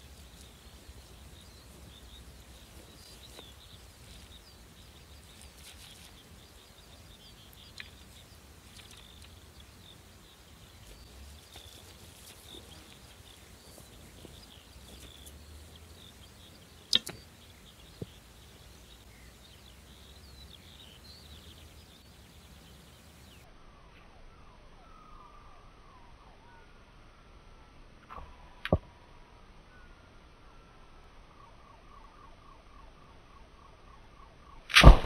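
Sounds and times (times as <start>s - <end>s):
birds chirping: 0.0s - 23.5s
bow shot snap: 16.9s - 17.2s, 34.7s - 35.0s.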